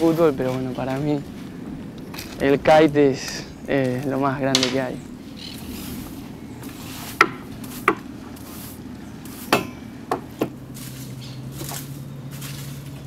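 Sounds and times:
low hum: 0:00.0 - 0:13.0
wooden knocks on a boat: 0:07.2 - 0:08.0.

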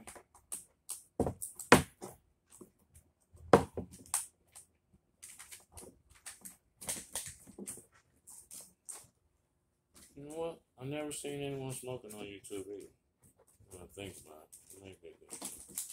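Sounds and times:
vinyl film crinkling: 0:05.2 - 0:09.1, 0:13.7 - 0:15.9.

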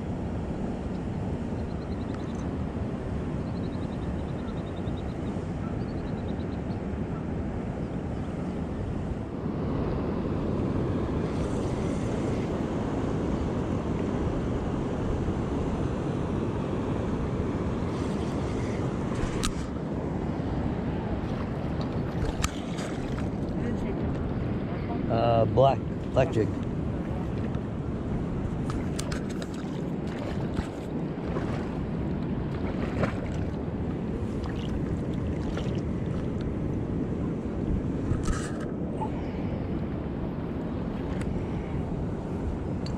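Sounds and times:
wind on microphone: 0:00.0 - 0:42.9
river water rushing: 0:28.5 - 0:36.4.

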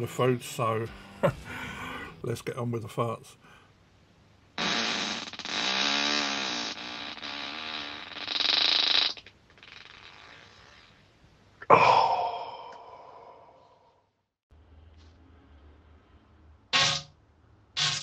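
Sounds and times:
person farting: 0:04.6 - 0:11.0.

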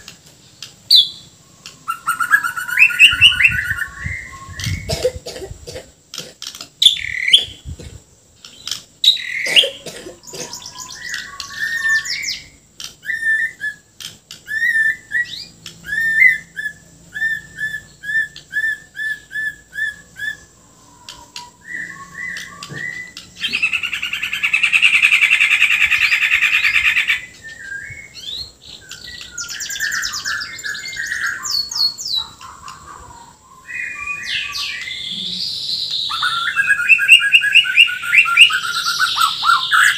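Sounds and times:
bird singing whistled phrases: 0:00.9 - 0:05.0, 0:10.6 - 0:32.4, 0:33.5 - 0:39.9
harsh rasping bird call: 0:09.0 - 0:28.2, 0:29.2 - 0:39.9.

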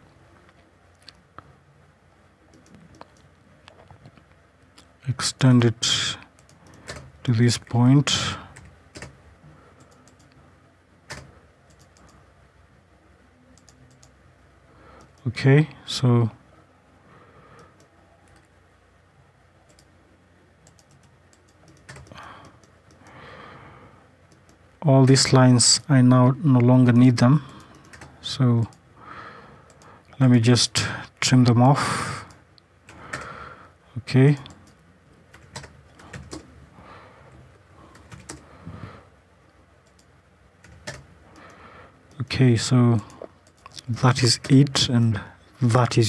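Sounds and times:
mouse clicks: 0:02.5 - 0:03.3
keyboard and mouse clicks: 0:02.5 - 0:04.9, 0:06.4 - 0:07.1, 0:08.5 - 0:09.2, 0:09.8 - 0:10.4, 0:11.1 - 0:12.2, 0:13.6 - 0:14.2, 0:19.7 - 0:19.9, 0:20.6 - 0:23.1, 0:24.3 - 0:24.6, 0:27.5 - 0:28.2, 0:34.4 - 0:36.5, 0:37.9 - 0:38.4, 0:39.8 - 0:41.6, 0:43.0 - 0:44.6
keyboard keystrokes: 0:08.6 - 0:09.1, 0:20.6 - 0:23.0, 0:39.8 - 0:41.0.

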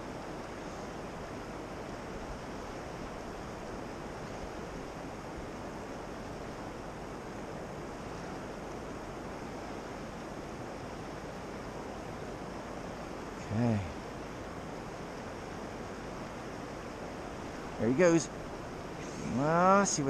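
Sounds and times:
river rushing: 0:00.0 - 0:20.0.

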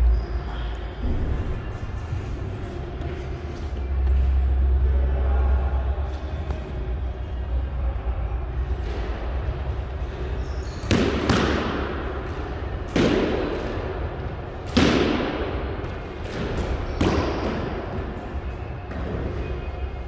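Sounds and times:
squash ball cracks echoing: 0:10.8 - 0:18.2.

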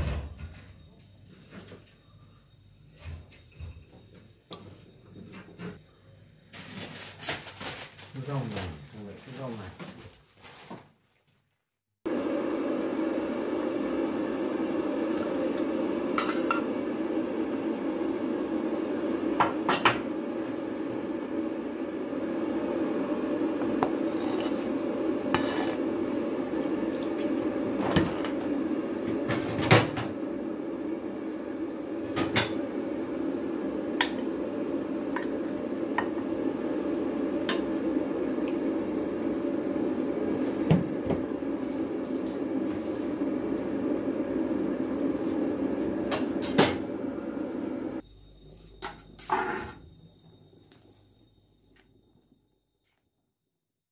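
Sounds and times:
broth boiling: 0:12.0 - 0:52.4.

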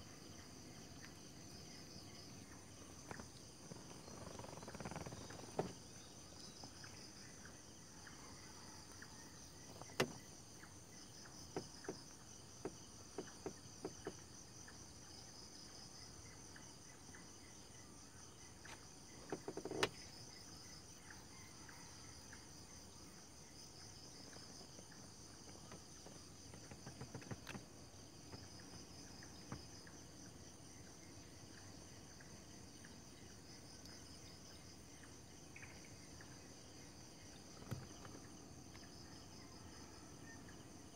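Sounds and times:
night insects trilling: 0:00.0 - 0:40.9
sharp clicks and knocks: 0:25.7 - 0:27.7.

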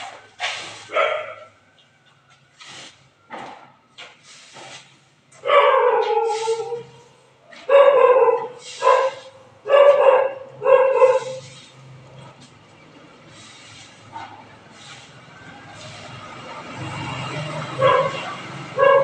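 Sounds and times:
tool scraping on pavement: 0:00.0 - 0:19.0
dog barking: 0:00.8 - 0:01.6, 0:05.4 - 0:07.0, 0:07.6 - 0:11.5, 0:14.1 - 0:14.5, 0:17.8 - 0:19.0.

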